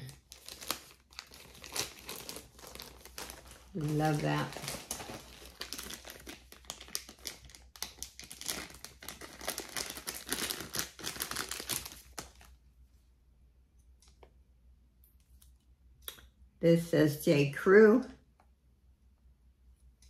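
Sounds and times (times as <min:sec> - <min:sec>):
packaging crinkling: 0:00.0 - 0:12.6.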